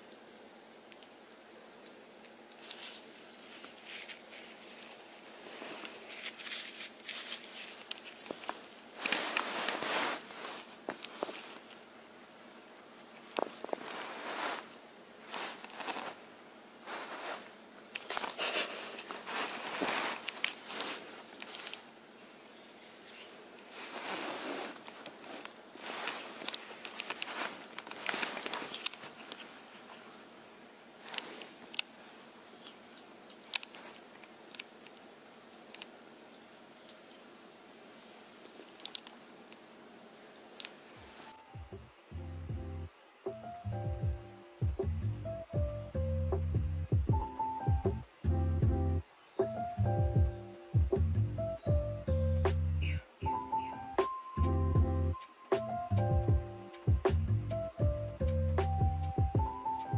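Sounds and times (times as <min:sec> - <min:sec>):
ferret scrabbling on carpet: 0:02.6 - 0:11.7, 0:13.3 - 0:16.2, 0:16.8 - 0:21.8
rubbing scuff on carpet: 0:13.7 - 0:14.7
small clicks: 0:38.6 - 0:39.6.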